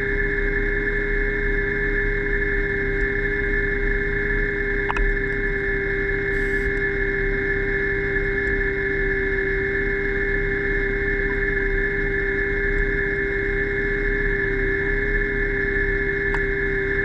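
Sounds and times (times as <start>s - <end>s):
underwater motor whine: 0.0s - 17.0s
brief click: 4.9s - 5.1s.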